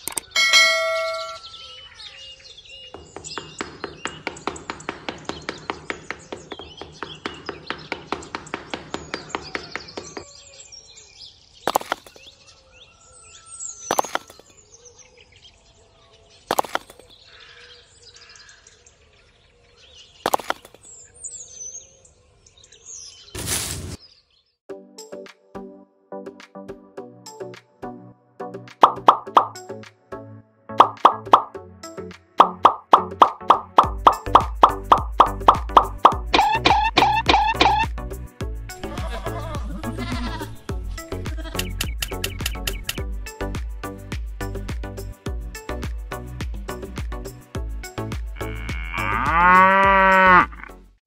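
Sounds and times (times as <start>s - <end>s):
birds chirping: 0.0s - 24.6s, 28.8s - 29.6s, 32.4s - 37.9s, 38.7s - 44.5s
brief ringing tone: 0.4s - 1.5s.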